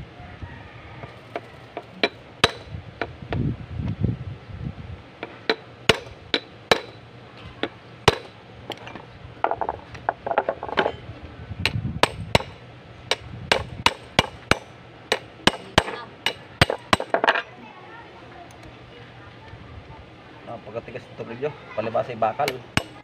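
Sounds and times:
wrench knocking on metal housing: 5.2s - 7.0s.

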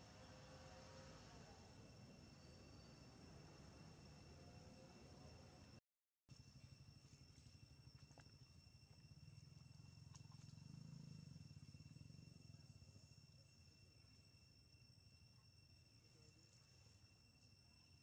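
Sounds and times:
thin steady high whine: 0.0s - 5.8s.

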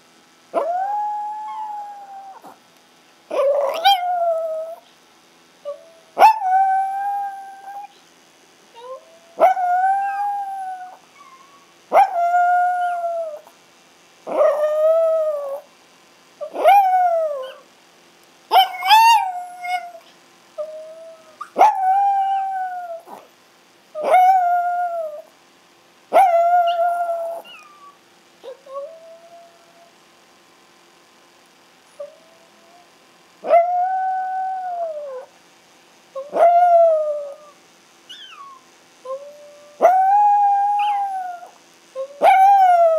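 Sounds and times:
small dogs howling: 0.5s - 2.6s, 3.3s - 4.8s, 5.6s - 8.0s, 8.8s - 13.6s, 14.3s - 15.7s, 16.4s - 17.7s, 18.5s - 23.3s, 24.0s - 25.3s, 26.1s - 30.0s, 32.0s - 35.4s, 36.2s - 42.9s.

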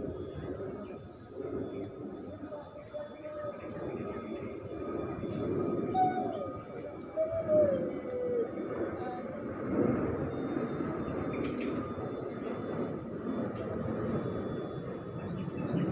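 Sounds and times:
distant voices: 0.0s - 15.9s
drawn-out falling call: 5.9s - 9.4s.

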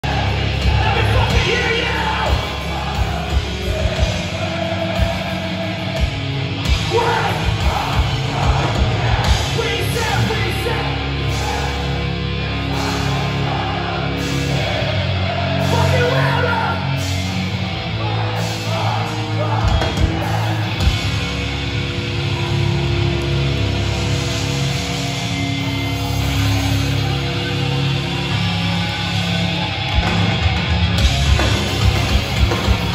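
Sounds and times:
shouted vocals: 0.0s - 23.3s
punk band playing live: 0.0s - 32.9s.

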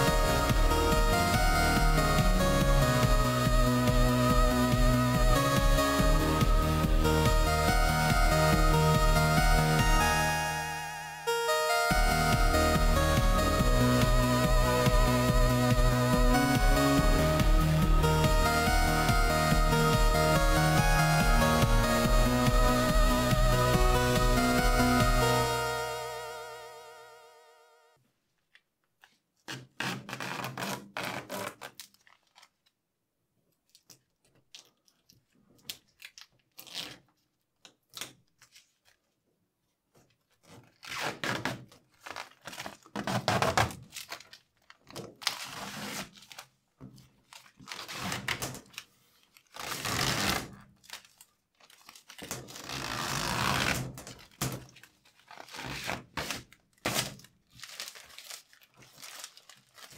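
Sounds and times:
plastic film peeling: 29.0s - 32.8s, 33.6s - 39.2s, 39.9s - 59.9s.

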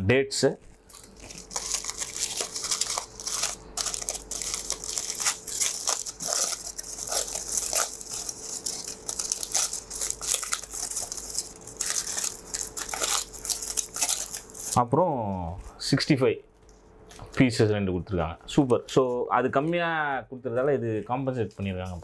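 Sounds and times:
aluminium foil crinkling: 0.7s - 14.8s, 21.2s - 22.0s.

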